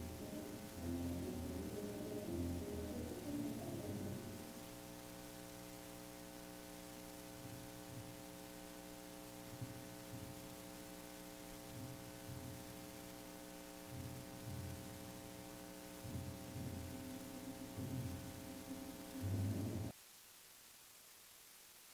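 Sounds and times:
mains hum and hiss: 0.0 - 21.9
faint low thuds: 7.4 - 8.7, 9.4 - 19.9.

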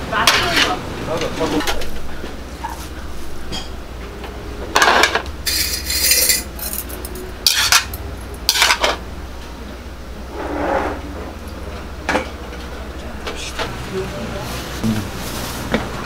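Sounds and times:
steady low hum: 0.0 - 16.0
bowls and utensils clattering: 4.8 - 9.0.

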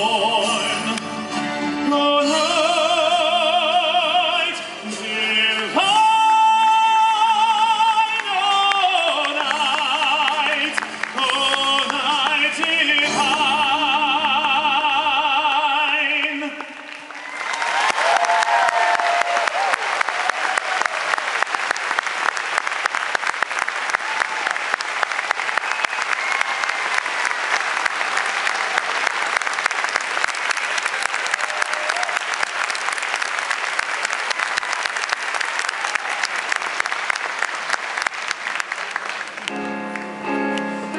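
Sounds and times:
audience applauding: 7.8 - 13.4, 16.4 - 40.9
scattered cheers: 17.1 - 21.6, 23.8 - 33.2, 35.4 - 36.8.

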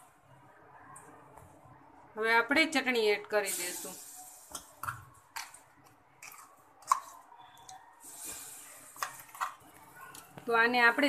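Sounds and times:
paste squishing off a spoon: 4.5 - 10.3.

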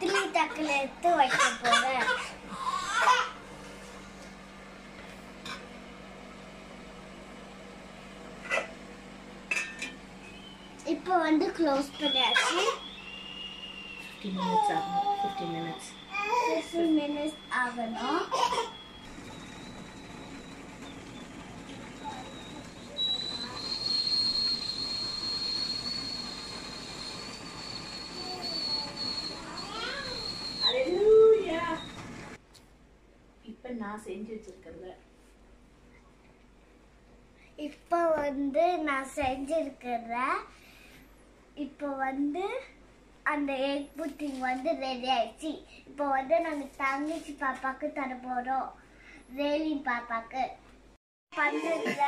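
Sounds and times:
faint kitchen hum: 0.0 - 52.0
steam whistling: 10.2 - 32.4.

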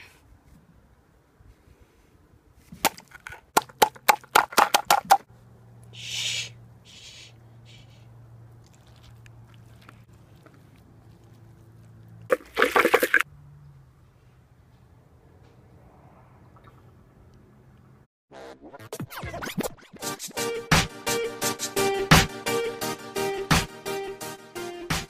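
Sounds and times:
short hiss: 6.0 - 8.0.

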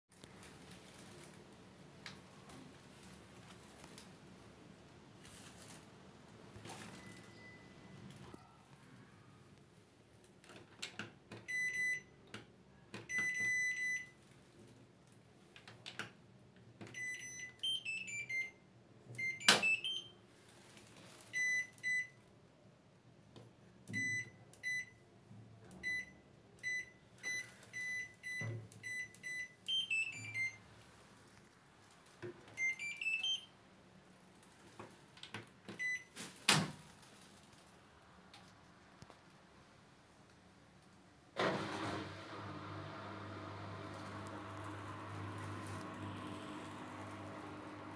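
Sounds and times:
washing machine beeps: 6.8 - 8.6, 11.4 - 12.2, 13.0 - 14.2, 16.9 - 20.2, 21.3 - 22.2, 23.9 - 25.0, 25.8 - 30.7, 32.5 - 33.6, 35.8 - 36.2, 41.4 - 47.9.

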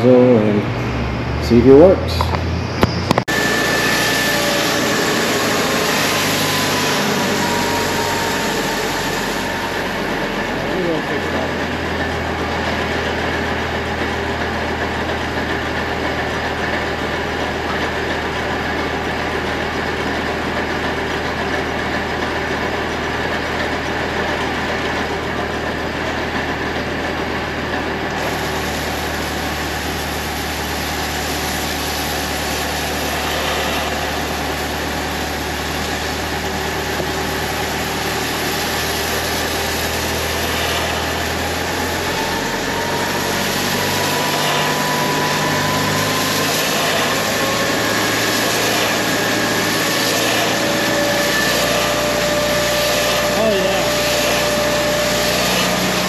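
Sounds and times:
engine and pump drone: 0.0 - 56.0
hiss: 28.2 - 56.0.

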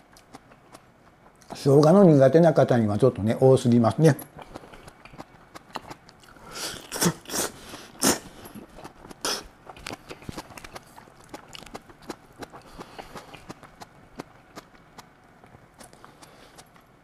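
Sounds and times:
chewing clicks: 0.0 - 2.0, 4.2 - 7.0, 8.4 - 16.9
person slurping noodles: 6.3 - 9.5.

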